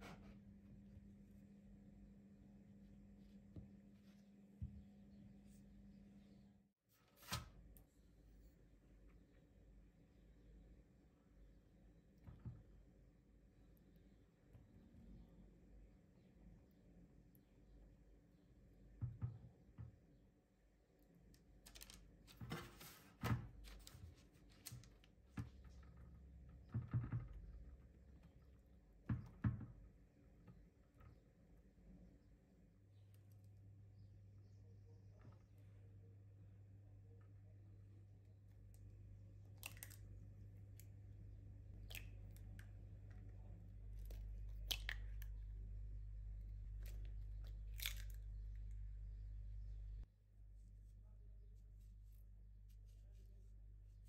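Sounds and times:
eggshells cracking: 46.9s - 48.5s.

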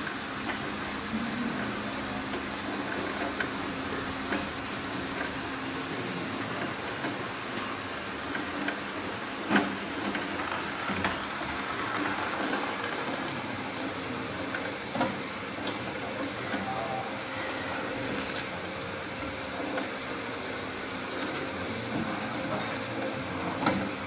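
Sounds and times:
small electric motors humming: 9.9s - 15.8s.

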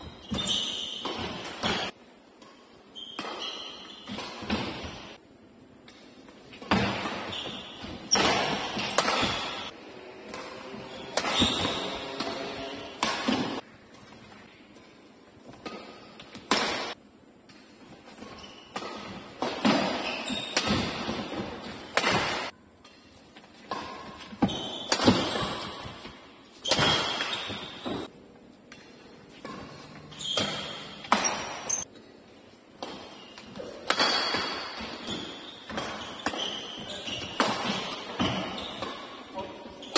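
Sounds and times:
rackets hitting shuttlecock: 0.0s - 5.2s, 5.8s - 14.4s, 15.5s - 32.0s, 32.8s - 39.9s
shoes squeaking on court floor: 0.0s - 5.2s, 5.9s - 39.9s.

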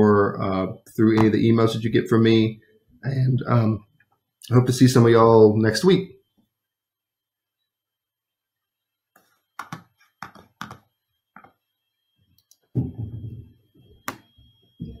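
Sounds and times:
low muffled thump with rumble: 12.8s - 13.6s.

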